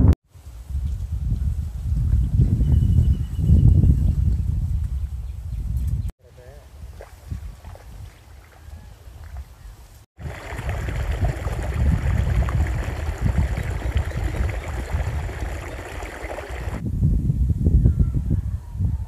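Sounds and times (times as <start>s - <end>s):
water rushing and gurgling: 10.2s - 16.8s.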